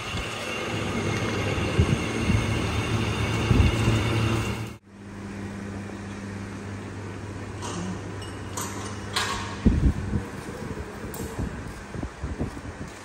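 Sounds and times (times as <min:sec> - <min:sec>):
lathe machining steel pipe: 0:00.0 - 0:04.8.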